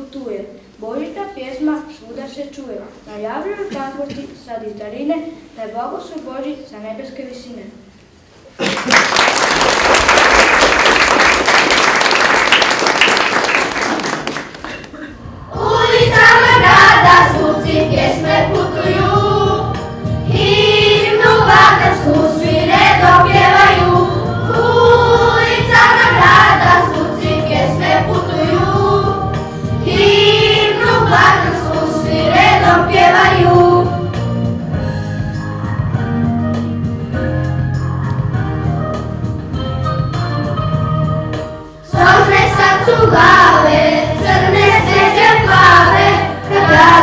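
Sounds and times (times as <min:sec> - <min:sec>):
applause: 0:08.6 - 0:14.9
musical accompaniment: 0:14.8 - 0:47.0
children singing into a microphone: 0:15.5 - 0:34.0, 0:41.9 - 0:47.0.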